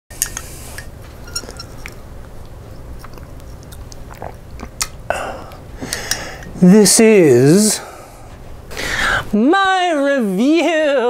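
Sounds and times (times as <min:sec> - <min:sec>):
low room hum: 0:00.1 - 0:11.0
person chewing crunchy snack: 0:01.4 - 0:06.1.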